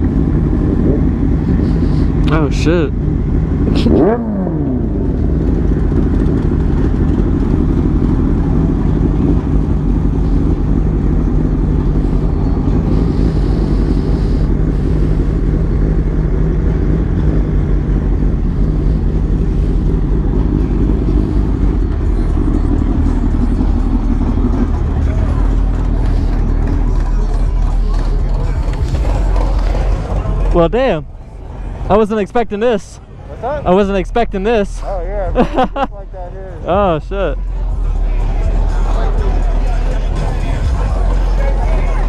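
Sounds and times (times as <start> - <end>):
motorcycle engine running at low revs: 0.0 - 32.6.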